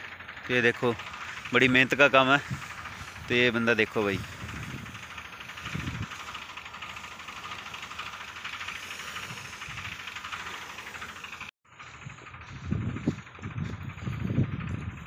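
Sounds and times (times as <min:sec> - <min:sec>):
spray pump engine running: 0:00.0 - 0:15.0
hiss of pressurised spray: 0:01.0 - 0:11.5.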